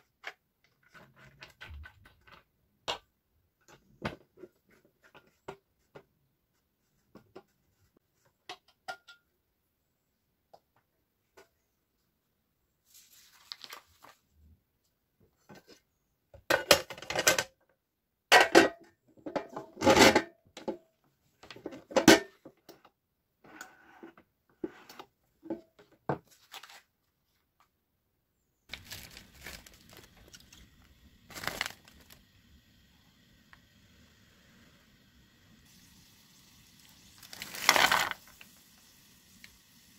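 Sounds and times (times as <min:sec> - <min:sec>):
packaging rustling and crinkling: 0:12.9 - 0:14.2, 0:28.7 - 0:32.2, 0:37.2 - 0:38.4.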